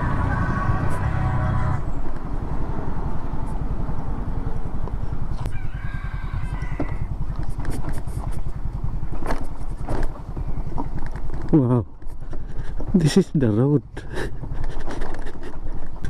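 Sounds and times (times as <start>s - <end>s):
rooster crowing: 0.0s - 1.9s, 5.4s - 7.1s
vehicle engine running: 0.0s - 16.0s.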